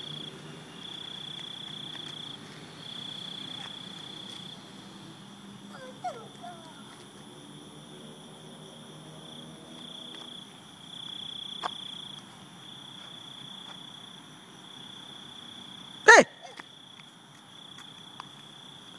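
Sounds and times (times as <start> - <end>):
crickets chirring: 0.0 - 18.9
loud high-pitched cry: 16.1 - 16.6.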